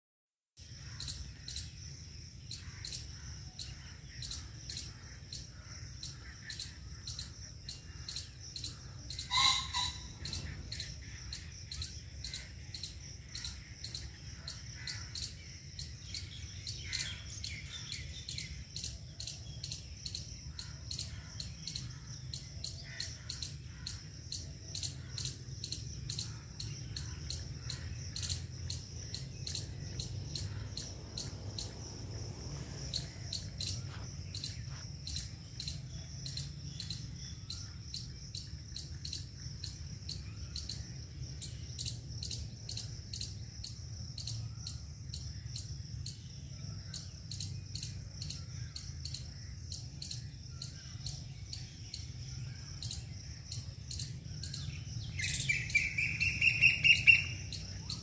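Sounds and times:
insect chirping: 0:00.6 - 0:58.0
low steady rumble: 0:24.1 - 0:38.7.

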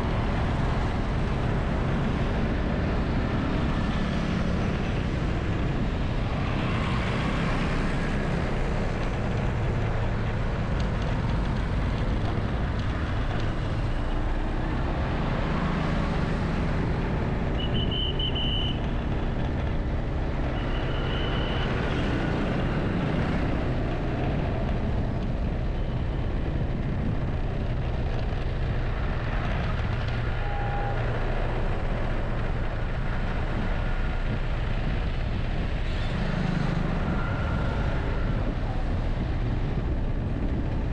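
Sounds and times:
city traffic rumble: 0:00.0 - 0:40.9.

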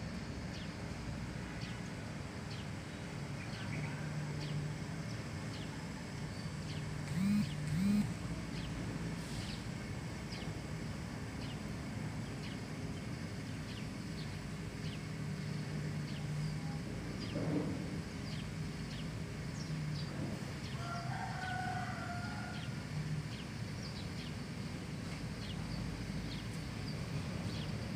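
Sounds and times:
rooster crowing: 0:20.7 - 0:23.0.

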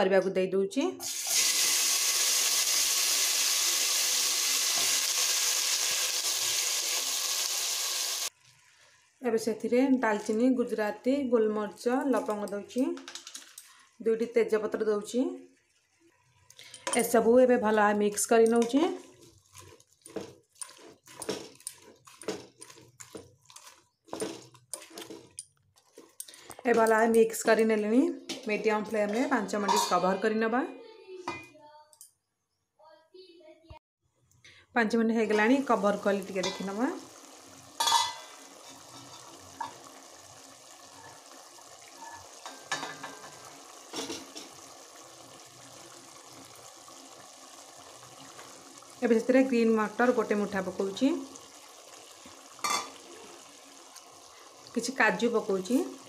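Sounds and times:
food sizzling in a pot: 0:01.0 - 0:10.8, 0:11.8 - 0:30.2, 0:35.2 - 0:56.0
spoon scraping in a pot: 0:18.5 - 0:27.2, 0:37.8 - 0:39.8.

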